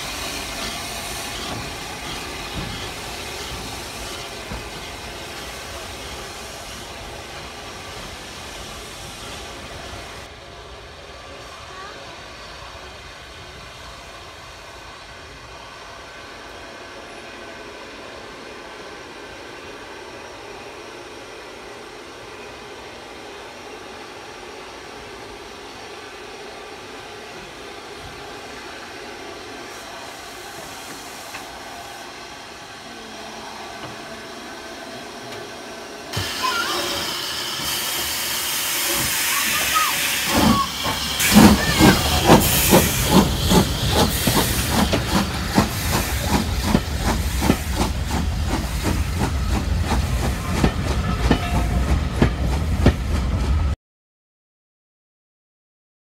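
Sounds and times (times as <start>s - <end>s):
steam hissing: 0.0s - 10.4s, 23.3s - 53.7s
steam locomotive exhaust chuffs: 0.0s - 10.4s, 36.1s - 53.8s.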